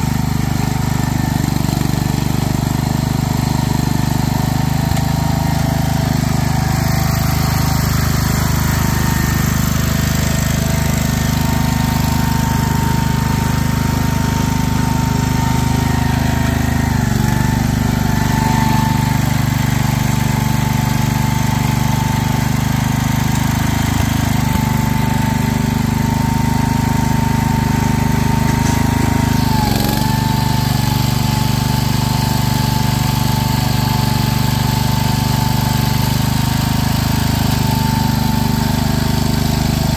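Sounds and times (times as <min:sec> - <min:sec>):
garden tractor engine running: 0:00.0 - 0:39.9.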